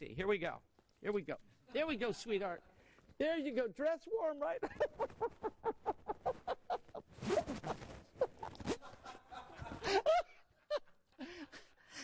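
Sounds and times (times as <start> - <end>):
man laughing: 4.6 - 7.6, 8.2 - 11.0.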